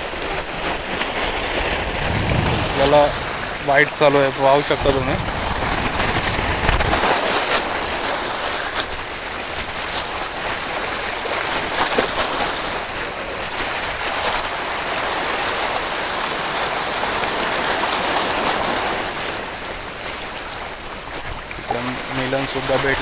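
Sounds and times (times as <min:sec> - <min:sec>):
waves splashing: 0:00.0 - 0:23.0
surf hissing on rocks: 0:01.4 - 0:05.2.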